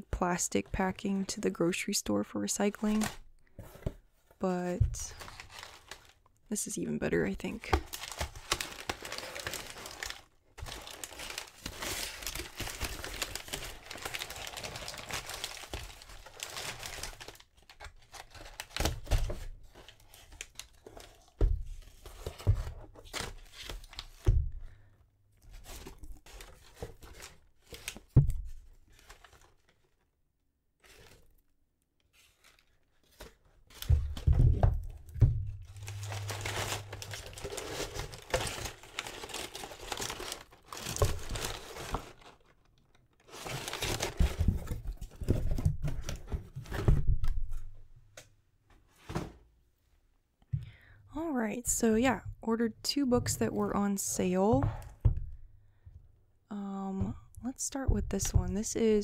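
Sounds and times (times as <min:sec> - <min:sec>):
packing paper rustling: 0:04.9 - 0:06.2, 0:07.4 - 0:24.3, 0:25.5 - 0:30.0, 0:30.8 - 0:31.3, 0:32.1 - 0:46.9.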